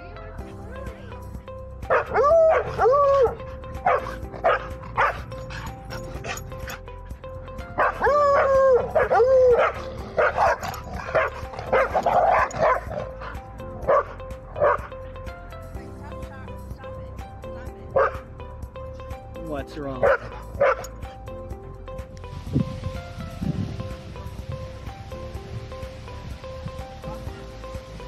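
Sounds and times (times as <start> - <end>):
dogs yowling: 1.8 - 15.3, 18.0 - 18.3, 20.0 - 21.4, 27.0 - 27.8.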